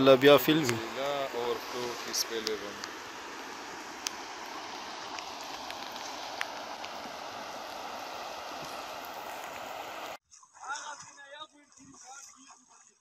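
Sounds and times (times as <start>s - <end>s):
floodwater rushing: 0.0s - 10.2s.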